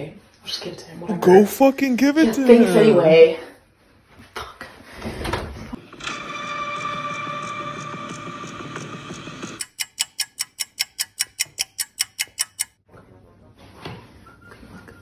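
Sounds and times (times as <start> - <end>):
fast even ticking: 9.6 - 12.8.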